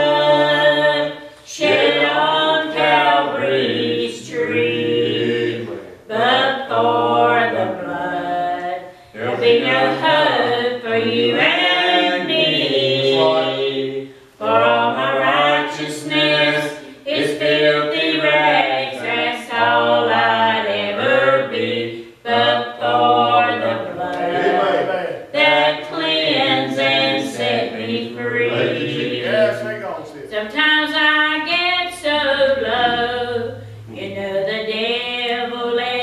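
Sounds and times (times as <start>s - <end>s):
choir singing gospel: 0.0s - 36.0s
low accompaniment: 23.6s - 25.6s, 32.2s - 36.0s.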